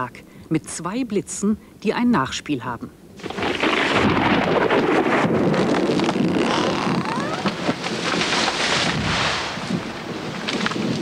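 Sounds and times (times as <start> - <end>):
wind: 0.0 - 11.0
thunder cracking and rumbling: 3.2 - 11.0.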